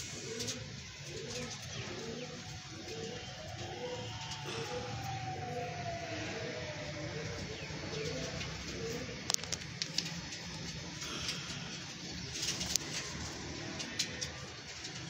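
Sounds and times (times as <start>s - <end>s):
pigeons cooing: 0.0s - 15.0s
faint long falling tone: 3.0s - 9.1s.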